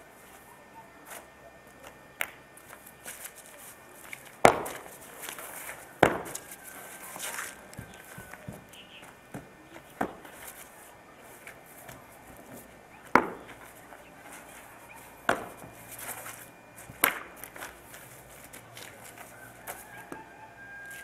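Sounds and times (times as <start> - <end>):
spear cracking on stone: 16.9 - 17.7.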